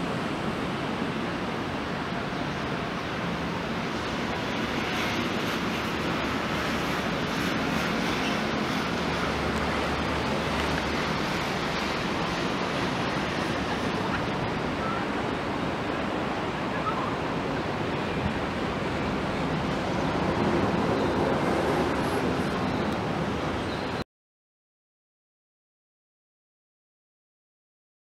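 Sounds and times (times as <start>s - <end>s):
steady outdoor rushing noise: 0.0s - 24.0s.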